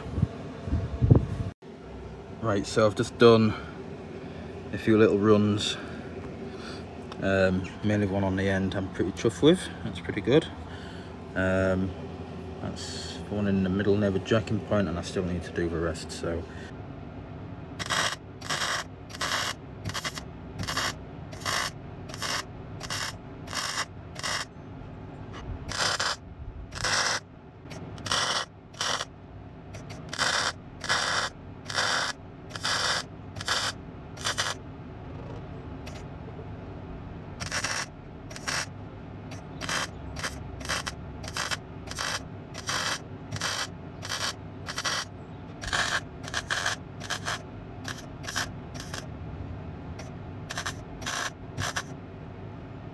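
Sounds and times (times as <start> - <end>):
welding arc crackling bursts: 17.8 - 24.5, 25.7 - 29.1, 29.8 - 34.6, 37.4 - 38.7, 39.3 - 49.1, 50.5 - 51.9.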